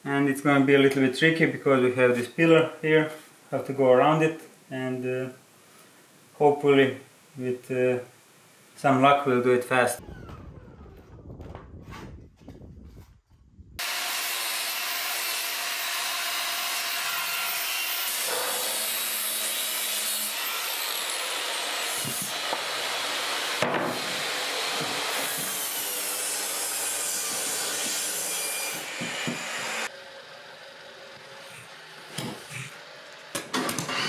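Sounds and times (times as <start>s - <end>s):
jigsaw sawing through wood: 13.8s - 29.9s.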